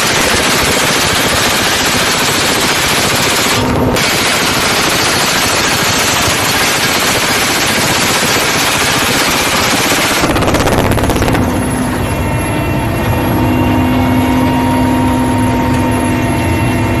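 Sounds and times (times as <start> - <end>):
machine gun firing: 0.0 - 11.7
helicopter engine and rotor whine: 0.0 - 17.0.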